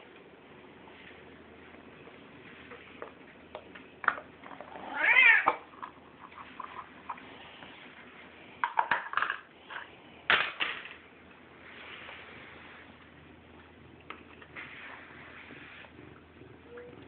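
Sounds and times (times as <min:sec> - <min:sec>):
cat meowing: 0:04.8 - 0:05.6.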